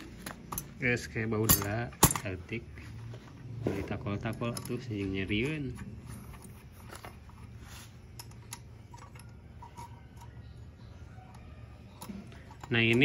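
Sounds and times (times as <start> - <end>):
metallic clicks of engine parts: 0.0 - 2.4, 6.2 - 13.0.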